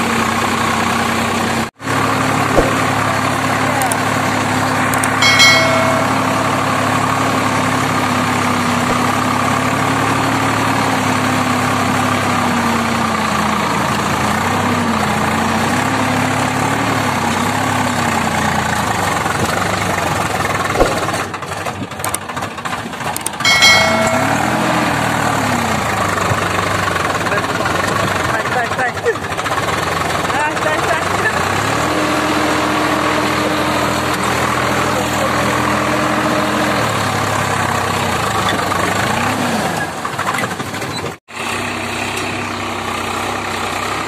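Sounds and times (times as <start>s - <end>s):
tractor diesel engine running: 0.0s - 44.0s
short chime: 5.2s - 7.2s, 23.5s - 25.1s.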